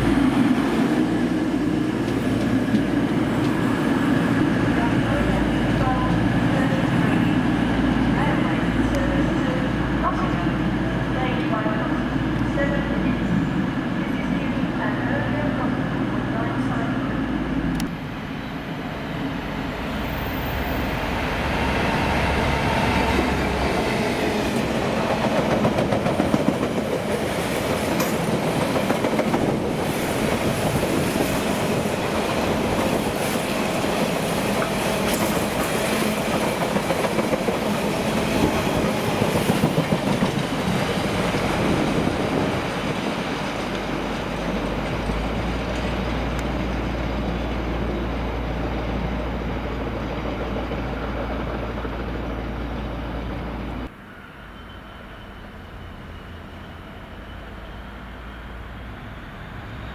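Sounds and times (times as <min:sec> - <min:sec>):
train rumbling past: 0:00.0 - 0:59.9
train wheels clicking: 0:24.6 - 0:31.4.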